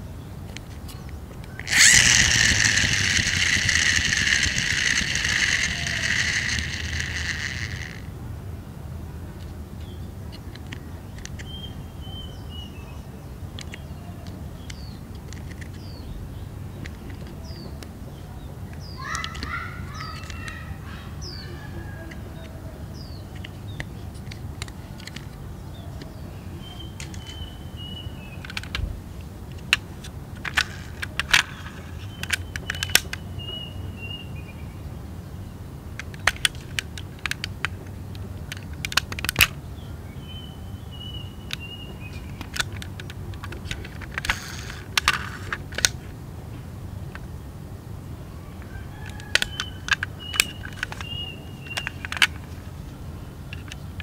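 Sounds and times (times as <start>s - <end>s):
steady low hum: 0.0s - 19.0s
toy car clicks and taps: 0.5s - 8.1s, 13.6s - 16.0s, 16.8s - 17.4s, 18.7s - 20.7s, 23.3s - 25.4s, 26.8s - 27.5s, 28.3s - 28.8s, 29.5s - 33.2s, 36.0s - 39.6s, 41.5s - 46.0s, 48.6s - 52.5s, 53.5s - 54.0s
toy car doors clicking shut: 0.6s - 8.1s, 18.8s - 20.6s, 23.3s - 25.4s, 26.8s - 27.5s, 28.3s - 28.9s, 29.5s - 33.2s, 36.0s - 39.6s, 41.5s - 46.0s, 48.6s - 52.5s.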